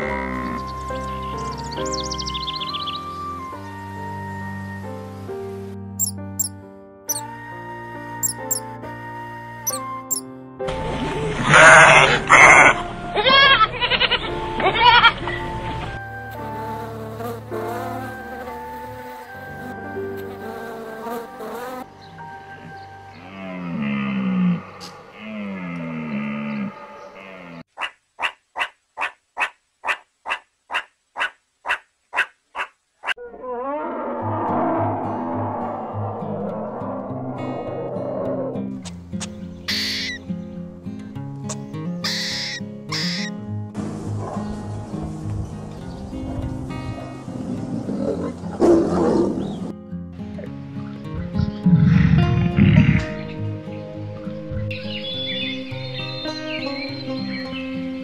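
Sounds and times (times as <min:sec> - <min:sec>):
background music: 0:00.0 - 0:27.4, 0:37.4 - 0:58.0
meerkat chirping calls: 0:06.0 - 0:06.5, 0:08.2 - 0:08.7, 0:09.7 - 0:10.2, 0:39.7 - 0:40.2, 0:41.5 - 0:43.3.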